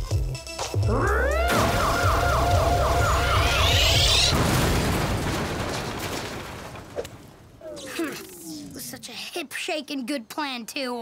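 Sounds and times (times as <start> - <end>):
music: 0.0 - 3.3
repeating warbling whoop: 0.9 - 4.4
cartoon crash: 0.9 - 8.7.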